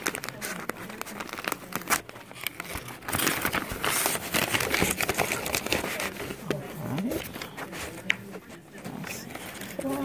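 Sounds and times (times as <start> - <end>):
tissue paper crinkling: 0.0 - 10.0.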